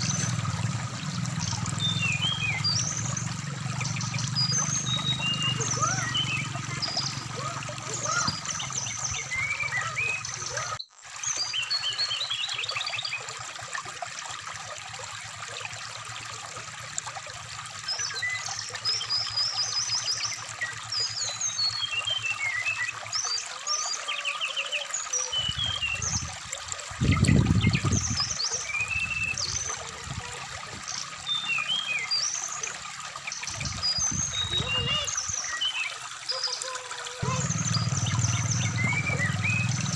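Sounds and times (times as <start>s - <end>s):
stream trickling: 0.0s - 39.9s
bird chirps whistles and trills: 4.1s - 7.2s, 33.5s - 35.9s.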